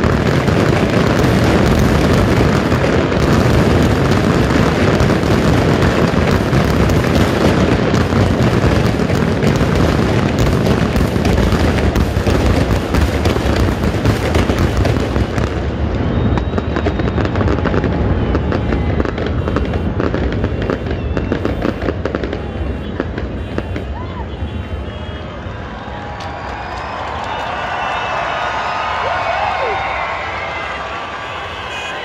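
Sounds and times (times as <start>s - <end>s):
fireworks booms and crackling: 0.0s - 32.0s.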